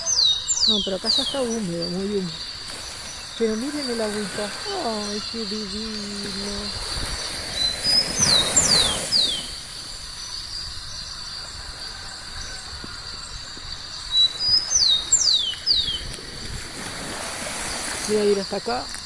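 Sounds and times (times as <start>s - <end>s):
small waves washing on sand: 1.1s - 10.5s, 14.3s - 19.0s
bird calling falling whistles: 6.3s - 9.6s.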